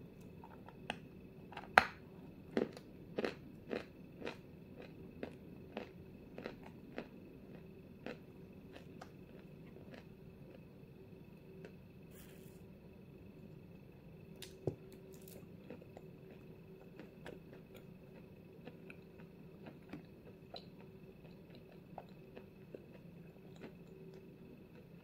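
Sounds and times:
chewing with moist crunching: 0:02.6 - 0:10.6, 0:14.4 - 0:25.0.

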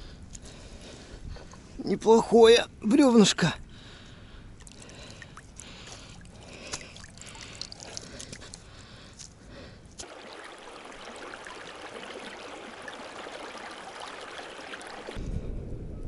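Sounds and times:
light water splashing: 0:04.5 - 0:09.4, 0:10.0 - 0:15.2
stream rushing over debris: 0:10.0 - 0:15.2.

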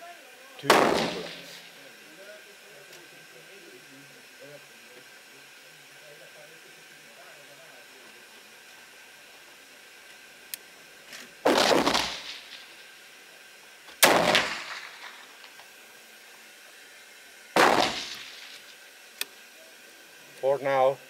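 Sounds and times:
gunshots echoing: 0:00.6 - 0:01.8, 0:11.5 - 0:12.7, 0:14.0 - 0:15.5, 0:17.6 - 0:18.6.

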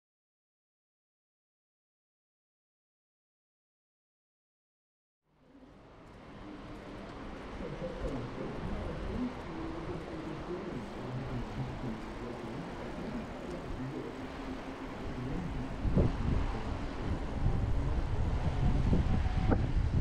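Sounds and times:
wind buffeting microphone: 0:06.8 - 0:20.0.

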